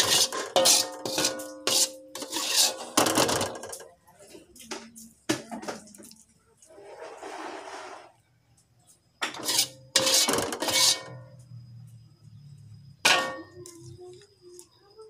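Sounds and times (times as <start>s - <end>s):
metal spatula scraping cookware: 0.0s - 3.8s, 9.2s - 11.4s, 13.0s - 13.6s.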